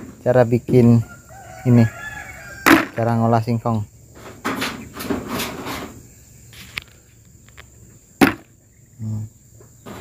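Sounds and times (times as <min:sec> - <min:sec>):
high insect drone: 0:00.0 - 0:10.0
sharp knock: 0:02.6 - 0:03.0, 0:08.2 - 0:08.5.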